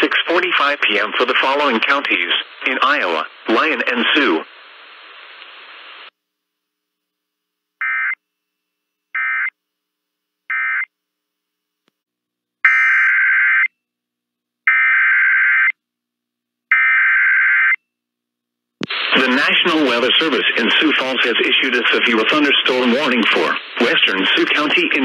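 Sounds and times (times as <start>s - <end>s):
two-tone digital data buzz: 12.7s - 13.4s.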